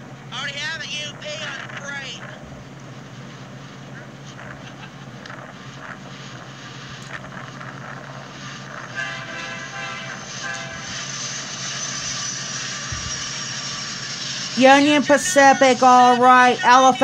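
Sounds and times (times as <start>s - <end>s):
diesel freight train rumble: 0.0s - 17.0s
multi-note horn tone: 8.8s - 12.0s.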